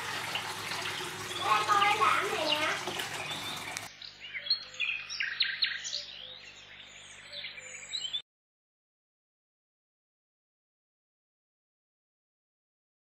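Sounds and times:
liquid trickling into a bottle: 0:00.0 - 0:03.9
small birds chirping: 0:00.1 - 0:08.2.

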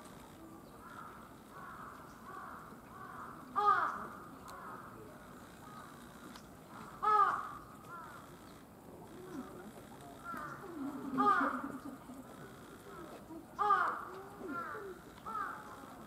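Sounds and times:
crow cawing: 0:00.8 - 0:08.4, 0:10.2 - 0:16.0.

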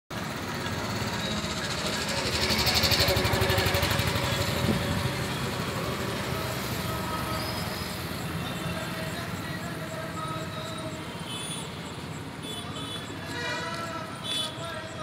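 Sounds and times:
vehicle engine passing by: 0:00.2 - 0:09.5
outdoor rumble: 0:00.2 - 0:10.9.

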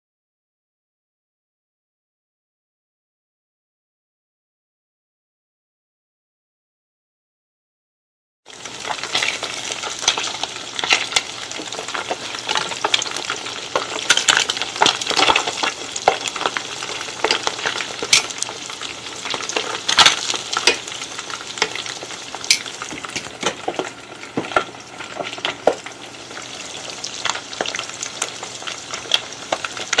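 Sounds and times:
fish sizzling in hot oil: 0:08.5 - 0:30.0.

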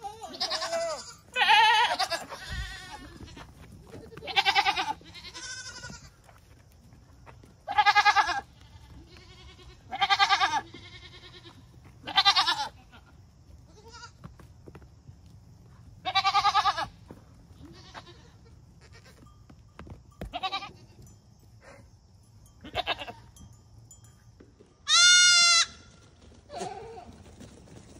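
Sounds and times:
goats bleating: 0:00.0 - 0:06.2, 0:07.7 - 0:14.2, 0:16.0 - 0:17.0, 0:17.6 - 0:19.3, 0:20.3 - 0:20.9, 0:22.6 - 0:23.2, 0:24.9 - 0:25.9.

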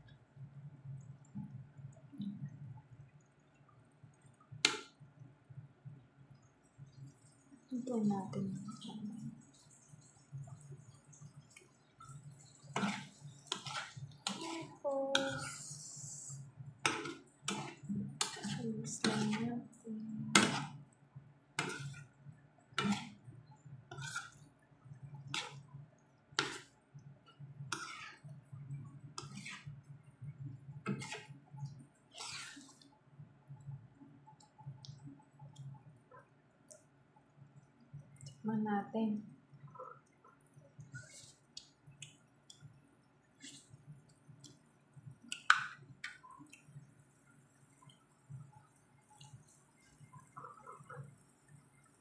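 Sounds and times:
sauce bubbling with pops and crackles: 0:00.0 - 0:07.7, 0:08.6 - 0:14.8, 0:16.3 - 0:38.4, 0:39.2 - 0:52.0
low steady hum: 0:00.0 - 0:52.0
utensils scraping a frying pan: 0:12.6 - 0:15.7, 0:16.8 - 0:19.5, 0:20.3 - 0:20.8, 0:21.6 - 0:22.1, 0:22.8 - 0:23.2, 0:23.9 - 0:24.4, 0:25.3 - 0:25.6, 0:26.4 - 0:26.7, 0:27.7 - 0:28.3, 0:29.2 - 0:29.7, 0:30.8 - 0:31.4, 0:32.1 - 0:32.8.

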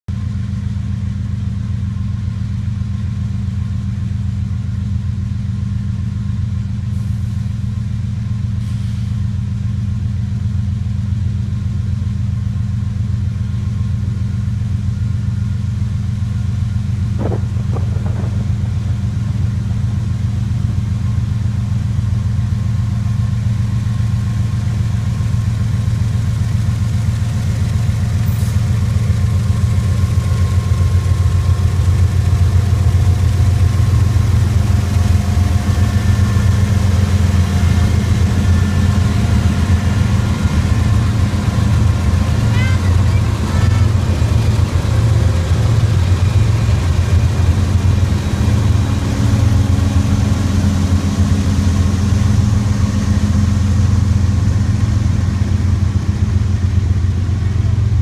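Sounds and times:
diesel locomotive engines rumbling: 0:00.1 - 0:58.0
brief knock: 0:17.2 - 0:18.8.

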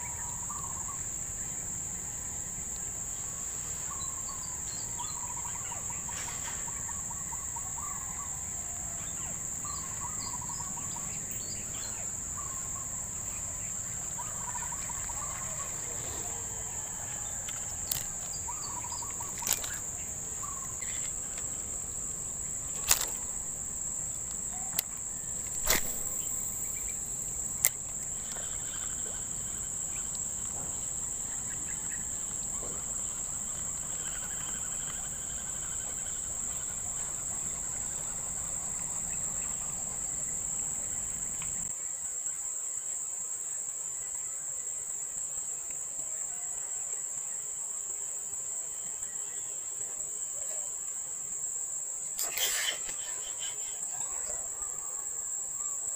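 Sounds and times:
high-pitched insect drone: 0:00.0 - 0:41.7, 0:48.8 - 0:55.9
sharp clicks: 0:22.7 - 0:23.3.

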